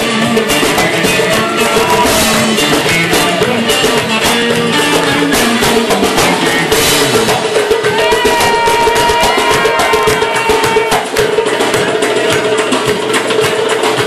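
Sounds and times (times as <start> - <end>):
band music melody: 0.0 - 14.0
steady drum beat: 0.0 - 14.0.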